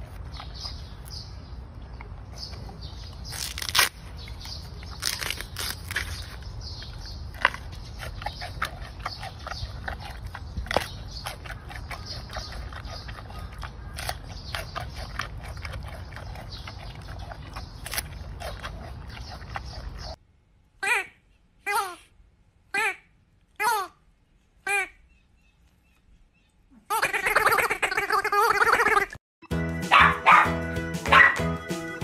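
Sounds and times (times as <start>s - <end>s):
panda chewing bamboo: 2.5s - 20.2s
crisp crunches of bamboo breaking: 3.2s - 6.5s.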